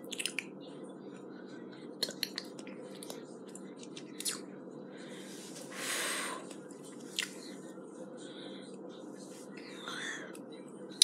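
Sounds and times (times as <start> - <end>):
mouth clicks and lip smacks: 0.0 - 0.5, 2.0 - 4.4, 7.1 - 7.4.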